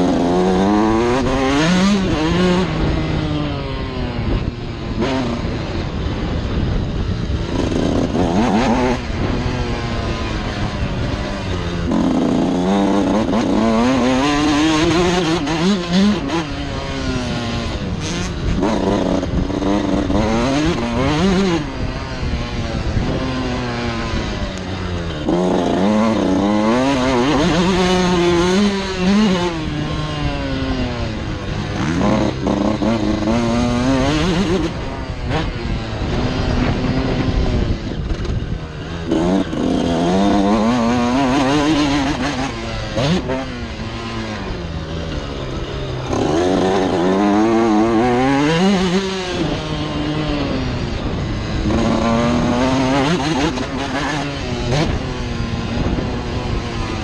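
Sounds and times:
motocross engine revving: 0.0s - 57.0s.

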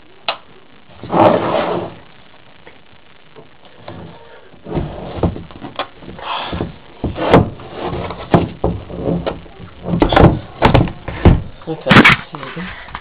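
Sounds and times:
knocks and bumps of handling things: 3.4s - 13.0s.

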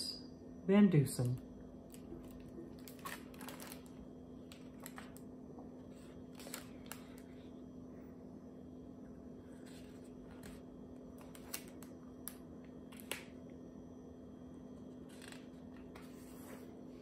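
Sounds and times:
faint steady hum: 0.0s - 17.0s
paper rustling: 1.9s - 5.2s, 5.9s - 7.3s, 11.2s - 11.9s, 15.0s - 16.7s
book pages turning clicks: 11.2s - 13.4s.

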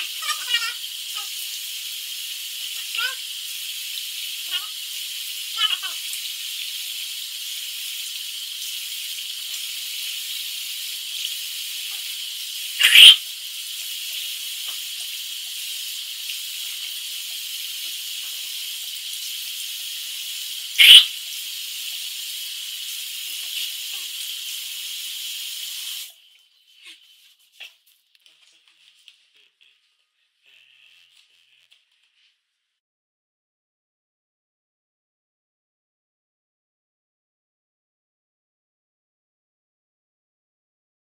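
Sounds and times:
tap water running into sink: 0.0s - 26.5s.

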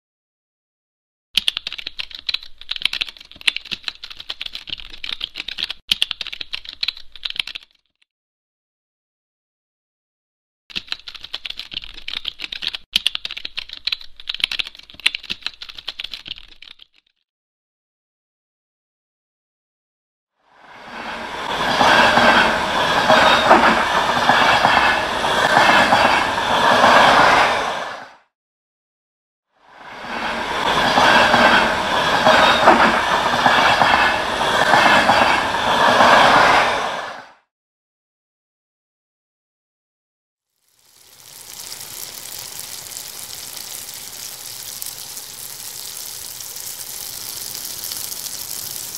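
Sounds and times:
fast typing on laptop keyboard: 1.4s - 7.9s, 10.7s - 17.2s, 40.9s - 48.9s
train wheels rushing on rails: 20.6s - 28.2s, 29.8s - 37.3s.

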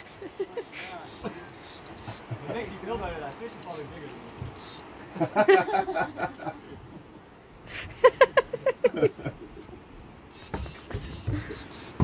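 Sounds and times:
man laughing: 0.0s - 2.7s, 5.1s - 7.2s, 7.8s - 9.8s.

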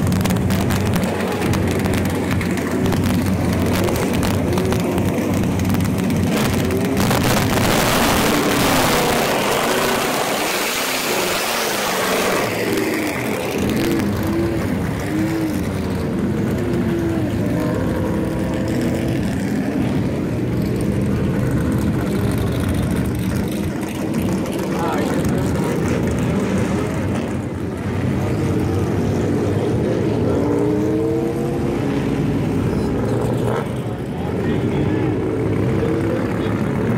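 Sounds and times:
race car engines rumbling: 0.0s - 36.9s.

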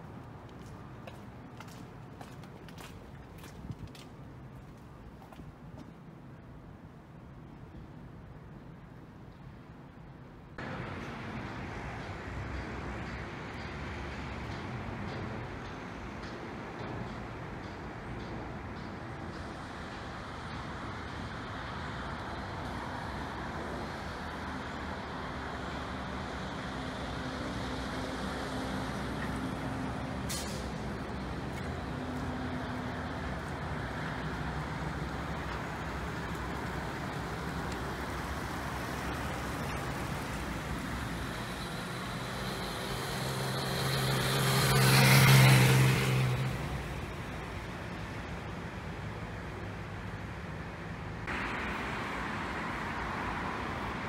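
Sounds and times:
urban traffic noise: 0.0s - 54.0s
vehicle passing close by: 26.6s - 47.6s.

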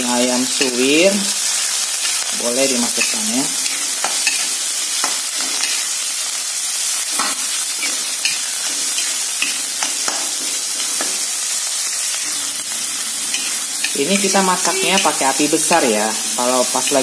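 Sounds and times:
food sizzling in hot oil: 0.0s - 17.0s
metal spatula scraping pan: 11.8s - 16.0s.

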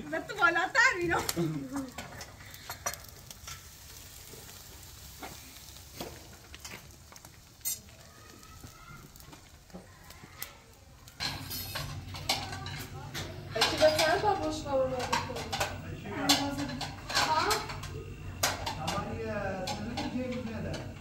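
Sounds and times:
meat sizzling on grill: 0.0s - 21.0s
sharp pops and clicks: 5.2s - 11.2s.

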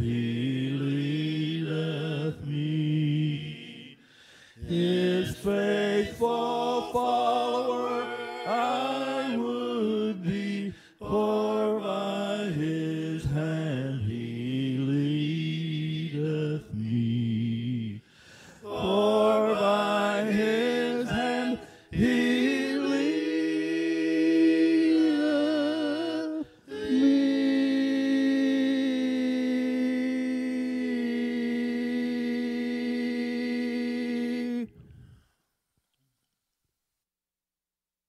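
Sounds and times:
man singing a hymn: 4.6s - 18.0s.

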